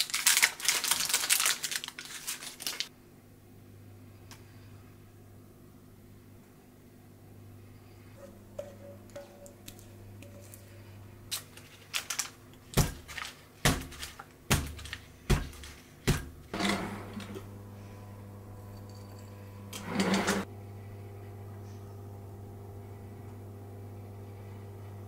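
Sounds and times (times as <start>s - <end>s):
kitchen drawer sliding open: 19.8s - 20.5s.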